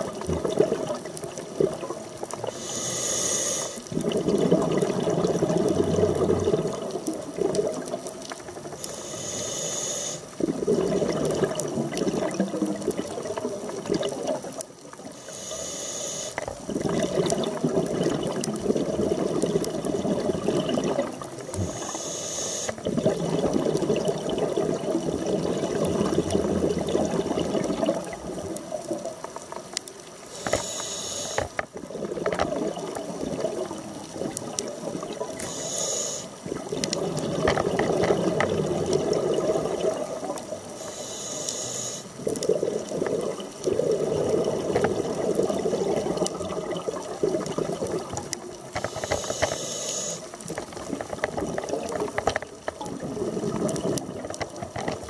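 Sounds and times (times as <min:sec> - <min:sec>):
burbling exhaled bubbles: 0:00.0 - 0:02.7, 0:03.7 - 0:08.9, 0:10.3 - 0:15.2, 0:16.4 - 0:21.9, 0:22.7 - 0:29.8, 0:31.4 - 0:35.5, 0:36.3 - 0:40.8, 0:42.2 - 0:49.4, 0:50.3 - 0:55.0
regulator inhale hiss: 0:02.4 - 0:03.9, 0:08.8 - 0:10.4, 0:15.2 - 0:16.5, 0:21.6 - 0:22.8, 0:30.3 - 0:31.6, 0:35.4 - 0:36.4, 0:40.7 - 0:42.2, 0:48.7 - 0:50.3.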